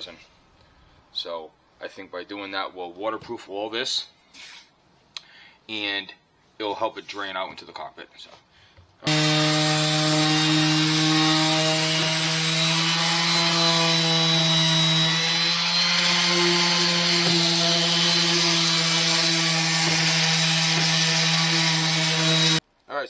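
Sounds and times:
orbital sander running: 9.1s - 22.6s.

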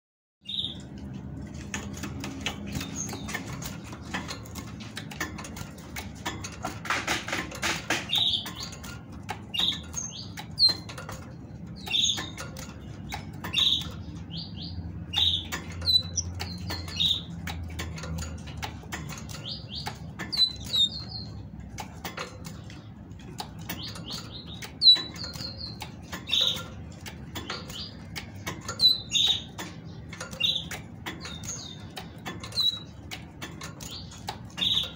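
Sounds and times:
claws ticking on wire: 0.9s - 34.9s.

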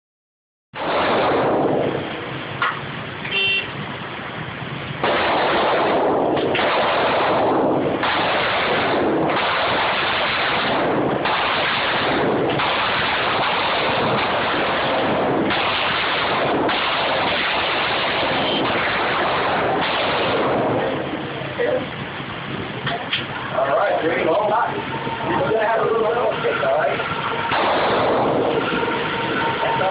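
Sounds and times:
pistol shots indoors: 5.0s - 20.6s, 27.5s - 28.5s.

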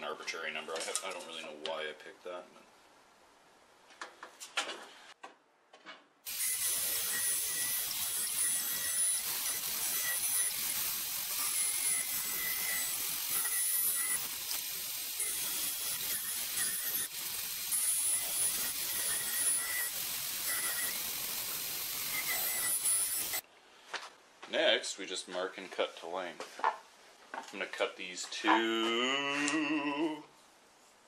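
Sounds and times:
band saw cutting wood: 6.3s - 23.4s.

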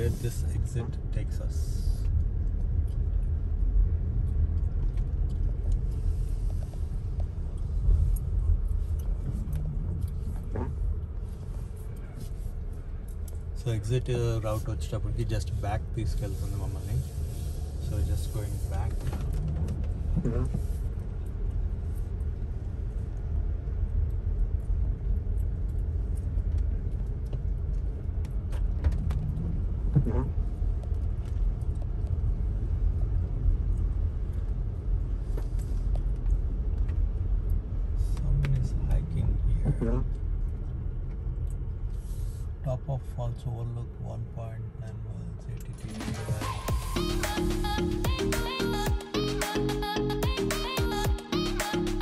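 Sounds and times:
car interior rumble: 0.0s - 52.0s
light ticks: 17.9s - 39.0s.

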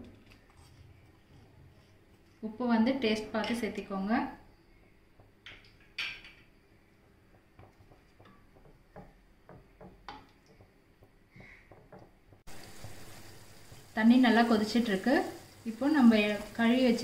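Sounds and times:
wooden spatula tapping metal pot: 5.1s - 12.5s
water heating hiss: 12.4s - 17.0s.

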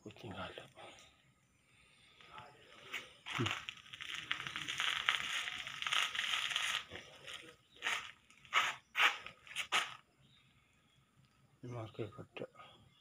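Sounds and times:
plant material crunching: 2.2s - 10.0s.

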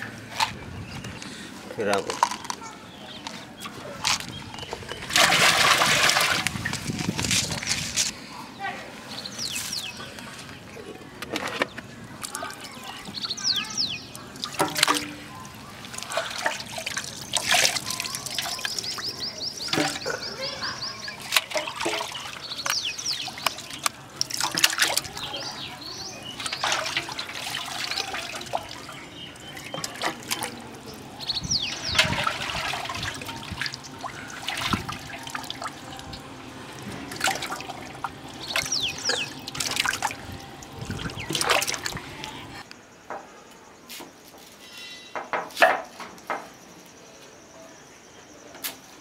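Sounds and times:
chickens splashing into water: 4.9s - 6.8s, 14.1s - 42.3s.

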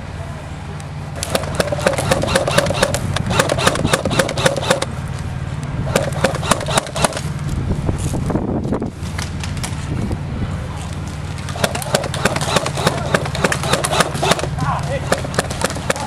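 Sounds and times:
steady low hum: 0.0s - 16.0s
airsoft gun firing full auto: 1.2s - 4.9s, 5.9s - 7.2s, 11.6s - 16.0s.

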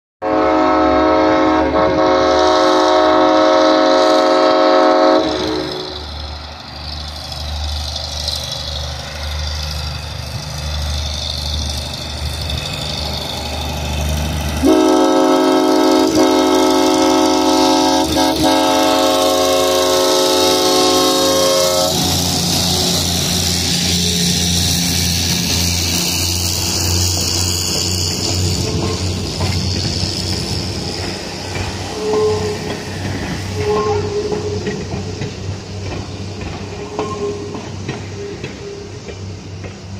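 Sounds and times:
locomotive air horn blasts: 0.2s - 6.0s, 14.6s - 22.2s, 31.9s - 32.7s, 33.6s - 34.4s
diesel engine rumbling: 4.4s - 39.9s.

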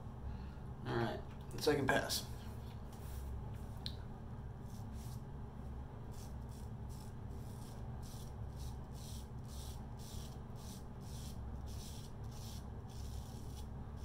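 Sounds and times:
razor scraping stubble: 6.1s - 14.0s.

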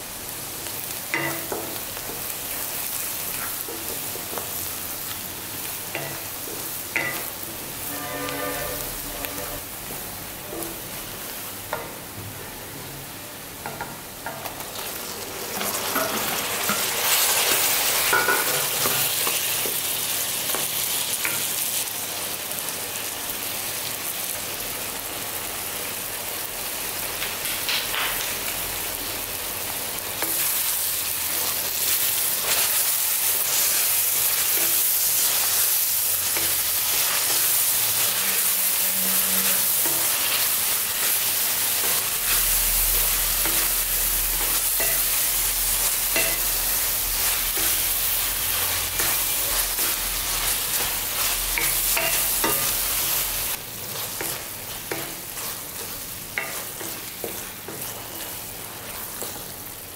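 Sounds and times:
vegetables sizzling in oil: 0.0s - 59.9s
spatula scraping and tapping pan: 5.9s - 7.4s, 41.8s - 45.2s, 48.9s - 52.9s, 54.0s - 59.5s.

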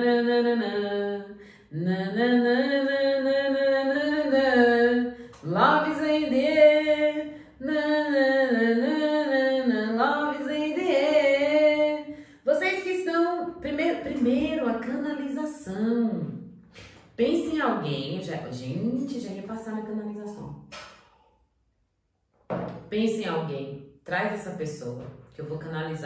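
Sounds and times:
woman singing wordless tune: 0.0s - 16.4s.

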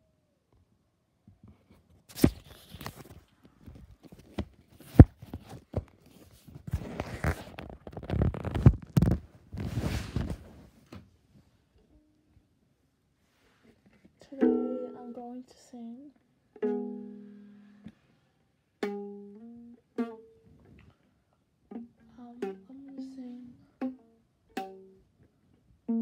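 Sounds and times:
rustling against microphone: 1.6s - 11.0s.

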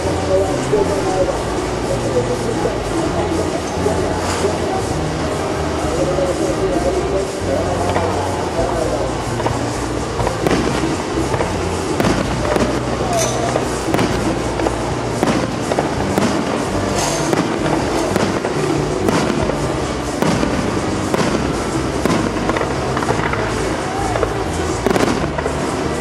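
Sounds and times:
music playing: 0.0s - 26.0s
firework shells bursting: 7.8s - 26.0s.

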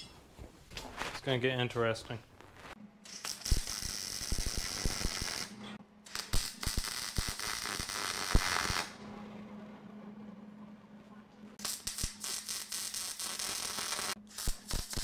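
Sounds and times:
welding arc crackling: 2.3s - 9.0s, 11.6s - 15.0s.

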